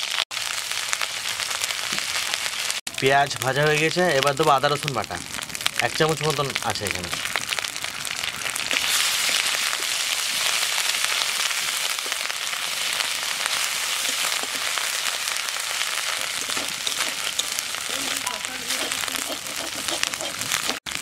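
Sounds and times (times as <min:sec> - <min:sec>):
paste sizzling in hot oil: 0:00.0 - 0:21.0
spatula stirring: 0:08.7 - 0:20.8.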